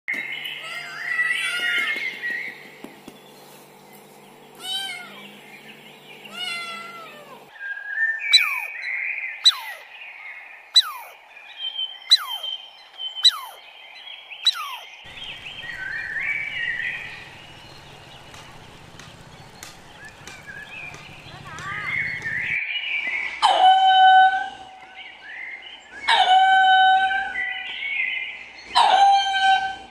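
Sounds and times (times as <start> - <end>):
bird sharp falling calls: 0.1 - 3.5, 12.1 - 12.6, 14.4 - 22.6
bird chirping: 0.1 - 23.1
outdoor background noise: 0.1 - 29.9
cat meowing: 4.6 - 5.2, 6.3 - 7.4.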